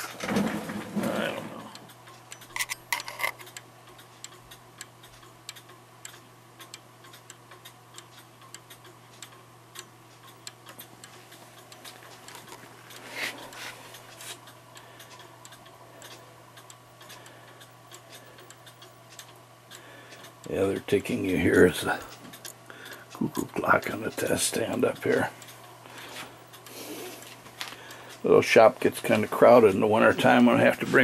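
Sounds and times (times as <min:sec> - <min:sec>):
steady low hum: 0:00.0 - 0:31.0
wall clock ticking: 0:03.3 - 0:31.0
cuckoo clock ticking: 0:14.4 - 0:25.8.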